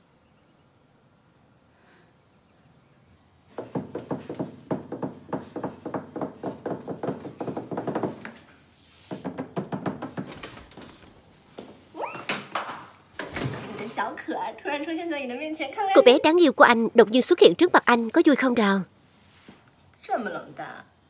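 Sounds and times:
knocking on wooden door: 3.6s - 8.4s, 9.1s - 10.4s.

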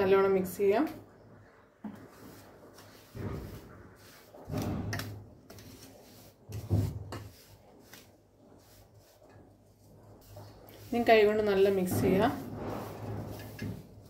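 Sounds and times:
spatula scraping metal bowl: 2.0s - 14.0s.

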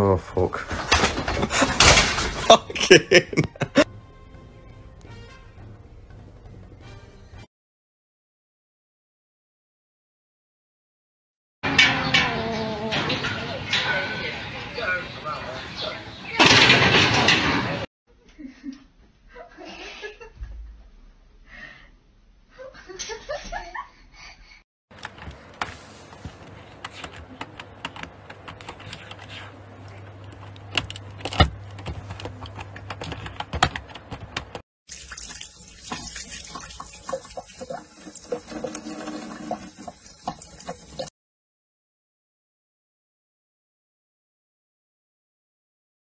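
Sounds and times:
keyboard keys clicking: 26.7s - 29.2s, 30.3s - 34.6s
tap water running: 34.9s - 41.1s.

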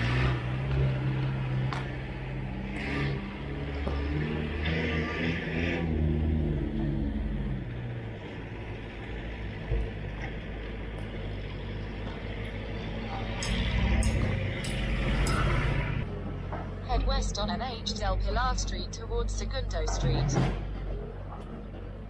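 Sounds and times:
motorcycle passing: 0.0s - 19.5s
vehicle engine hum: 0.0s - 22.0s.

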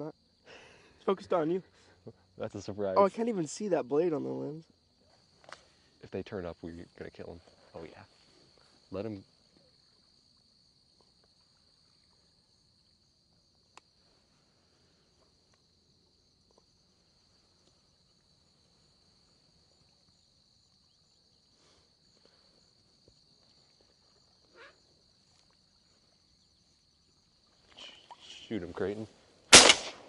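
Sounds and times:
insect buzz: 7.9s - 30.0s.

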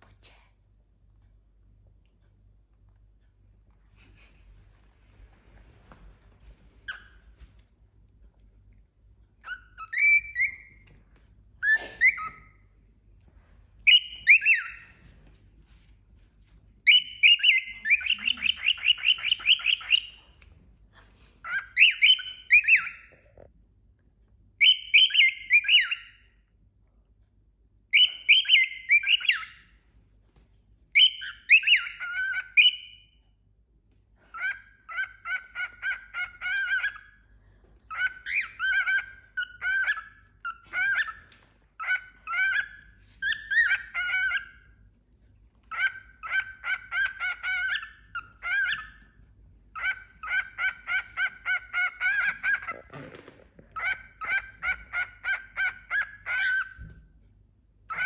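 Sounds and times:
cockatiel whistling: 9.4s - 10.9s, 13.8s - 15.0s, 16.8s - 20.3s, 21.4s - 23.2s, 24.6s - 26.3s, 27.9s - 29.7s, 31.0s - 33.1s, 34.3s - 37.1s, 37.9s - 44.6s, 45.7s - 49.0s, 49.8s - 52.8s, 53.8s - 57.0s.

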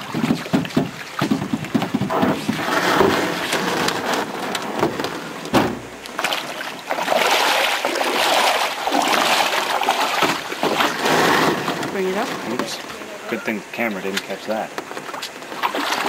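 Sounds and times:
paddle strokes splashing water: 0.0s - 13.3s, 14.0s - 16.0s
sharp knock: 5.5s - 5.9s.

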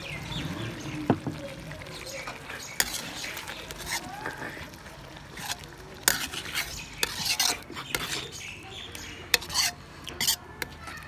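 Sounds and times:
ladle clinking and scraping pan: 2.1s - 4.0s, 5.3s - 10.8s.

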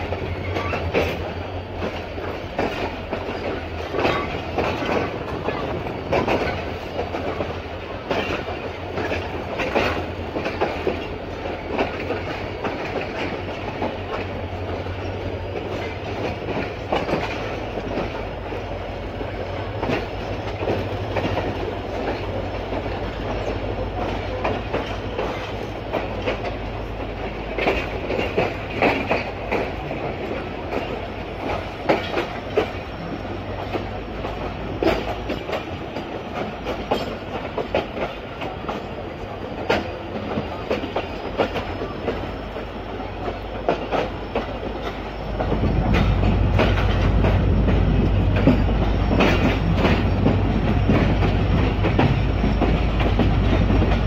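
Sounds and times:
train low rumble: 0.0s - 54.0s
train wheels clattering over rail joints: 0.0s - 54.0s.

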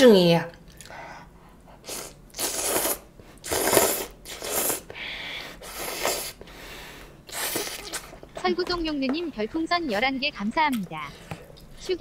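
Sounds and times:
eating and dish-handling sounds: 7.3s - 10.0s.

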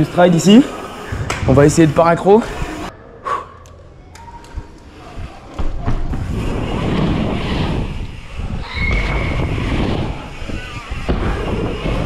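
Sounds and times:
wind buffeting microphone: 6.1s - 12.0s.

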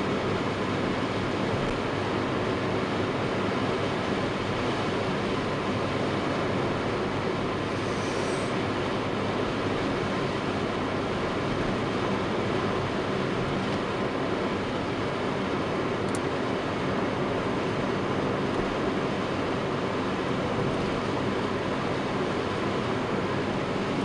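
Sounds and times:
car engine rumble: 0.0s - 24.0s
tyre hiss: 7.7s - 8.6s.

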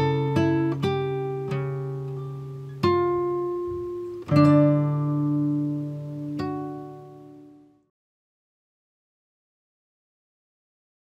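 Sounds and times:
gentle plucked-string music: 0.0s - 7.9s.

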